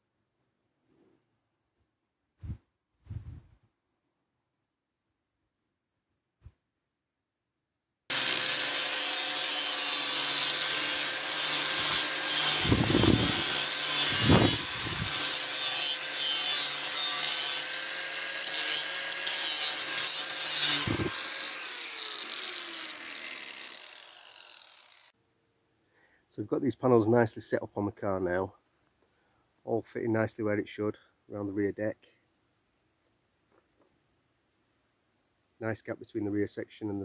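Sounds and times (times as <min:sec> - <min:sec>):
angle grinder grinding fiberglass: 0:08.1 - 0:25.1.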